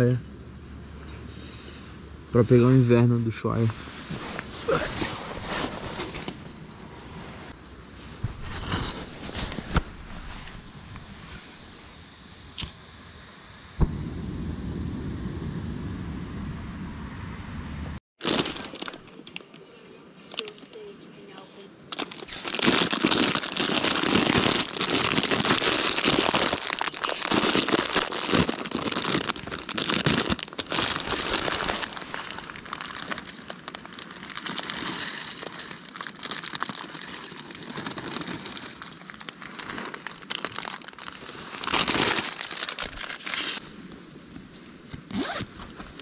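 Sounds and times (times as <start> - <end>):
plastic bag crinkling: 18.2 - 19.3, 21.9 - 43.6.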